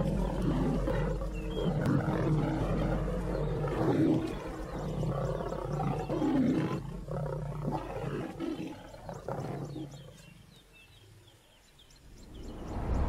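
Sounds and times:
lions growling and fighting: 0.0 - 10.6.

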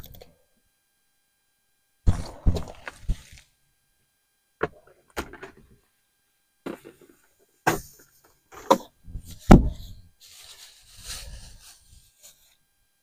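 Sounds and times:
knocks and thumps: 2.1 - 3.4, 4.6 - 5.8, 6.6 - 9.9.

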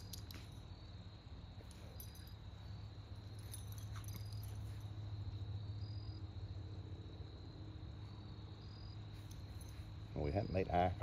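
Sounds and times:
light metallic jingle: 0.0 - 6.2, 8.8 - 11.0.

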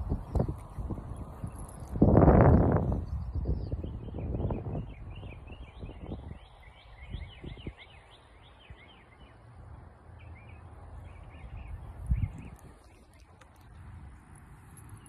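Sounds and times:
small birds chirping: 0.0 - 15.0.

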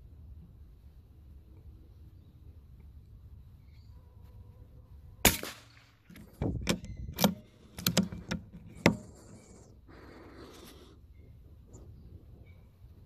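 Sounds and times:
rifle shot: 5.2 - 6.0
rifle bolt clicking and clacking: 6.1 - 9.5.

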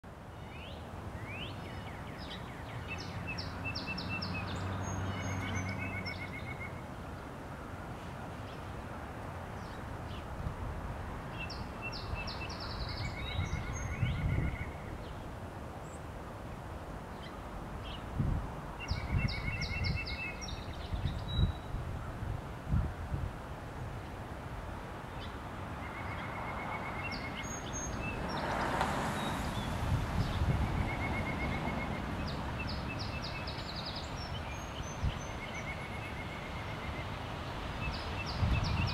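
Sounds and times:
birds trilling and chipping: 25.1 - 38.9.

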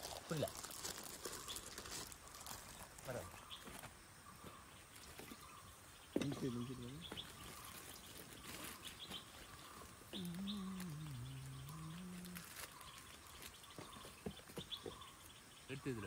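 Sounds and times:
small birds chirping: 0.0 - 16.0
low wavering animal call: 9.6 - 13.4.

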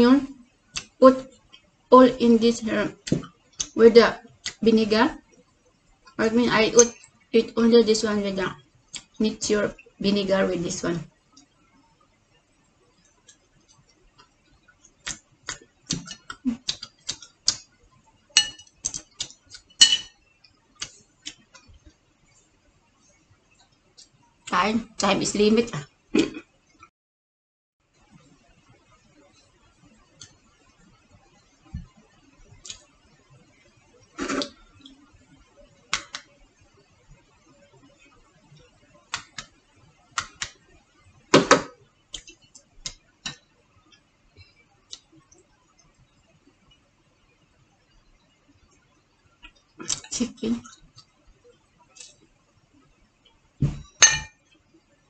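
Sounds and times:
chopsticks and plate clattering: 18.4 - 18.8, 19.8 - 20.2, 53.8 - 54.4
tableware clinking: 18.4 - 18.8, 19.8 - 20.2, 53.6 - 54.4.

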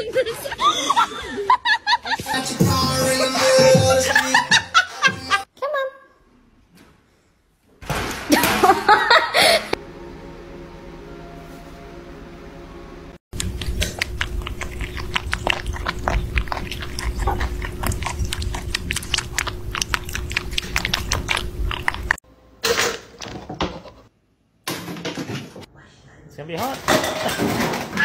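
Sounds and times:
kittens lapping milk: 13.4 - 22.2.

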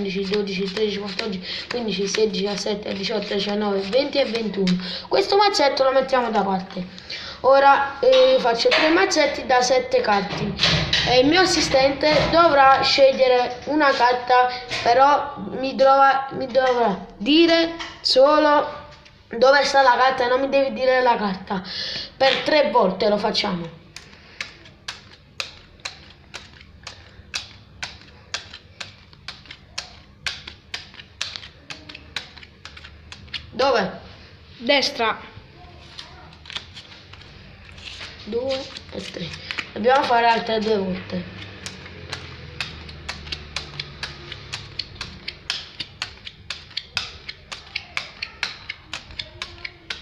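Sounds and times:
playing cards clicking on stone: 0.1 - 4.8, 23.9 - 33.5, 36.0 - 40.5, 41.3 - 50.0.

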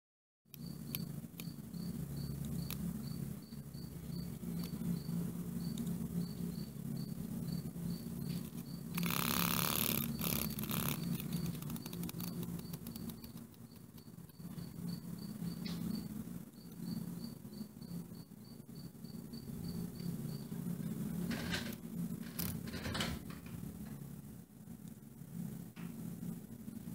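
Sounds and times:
insect chirping: 0.5 - 22.8
low steady hum: 0.5 - 26.9
harsh buzzing burst: 0.7 - 13.5.

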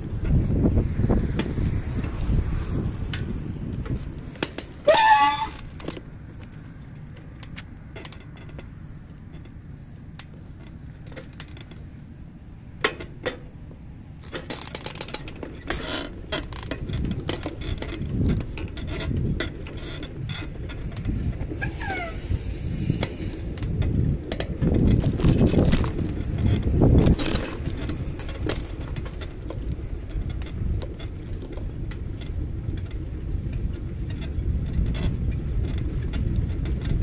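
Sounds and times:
rattles and clicks: 0.0 - 12.0, 12.8 - 37.0
wind rumbling on microphone: 0.0 - 37.0
wavering squeal: 4.8 - 5.7, 21.6 - 22.3.

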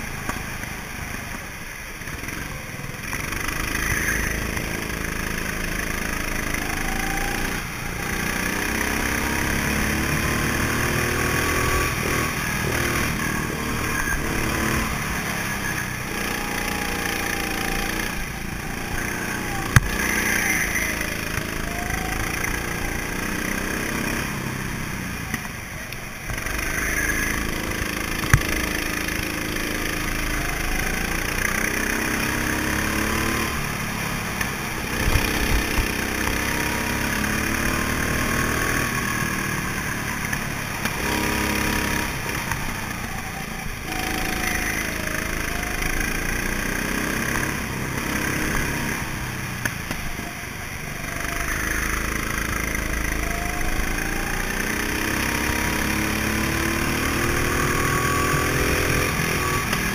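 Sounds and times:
go-kart engines revving: 0.0 - 59.9.

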